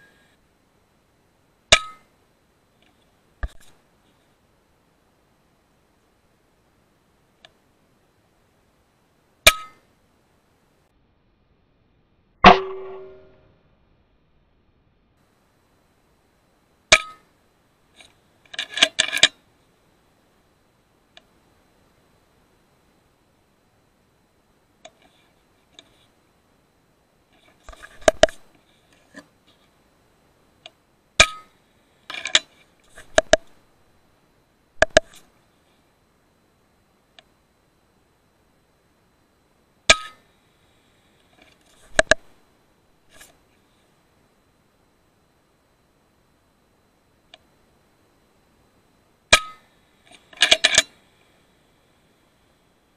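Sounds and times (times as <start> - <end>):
faint click: 21.1 - 21.4, 37.1 - 37.4, 47.3 - 47.5
air rifle cycling clicks: 50.2 - 50.9.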